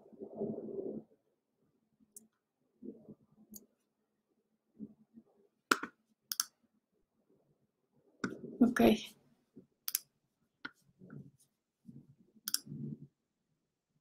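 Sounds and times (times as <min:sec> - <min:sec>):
computer mouse clicking: 0:05.7 - 0:06.6, 0:09.8 - 0:10.8, 0:12.4 - 0:12.8.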